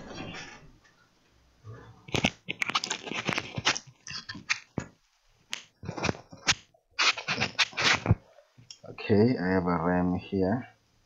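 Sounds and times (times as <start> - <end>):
rustling: 2.0 - 8.5.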